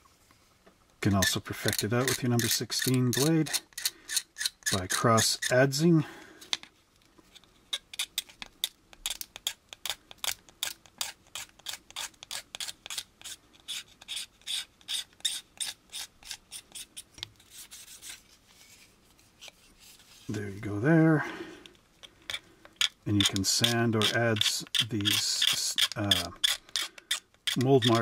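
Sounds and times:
hobby knife scraping plastic: 1.2s - 5.7s, 7.3s - 18.2s, 22.0s - 28.0s.

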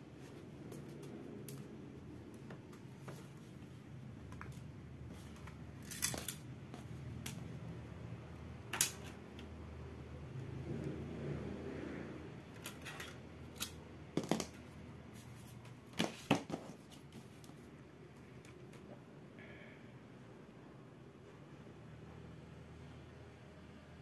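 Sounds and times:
plastic clips snapping: 8.7s - 9.2s.

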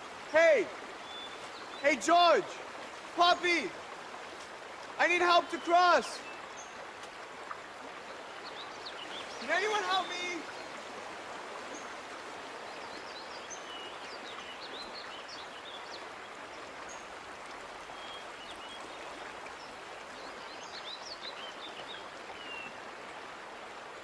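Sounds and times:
creek water over rocks: 0.0s - 24.0s
small birds chirping: 0.2s - 3.7s, 5.0s - 7.2s, 8.0s - 11.0s, 11.7s - 17.1s.

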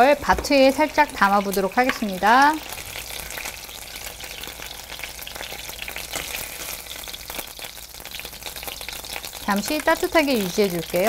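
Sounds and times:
fat sizzling in a frying pan: 0.0s - 11.0s.

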